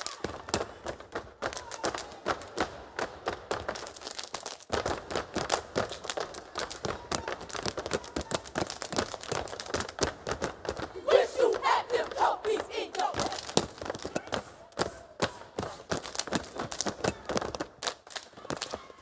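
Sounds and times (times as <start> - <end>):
hand claps and body slaps: 0.0 - 19.0
rhythmic foot stomps: 0.1 - 19.0
people shouting: 10.9 - 15.8.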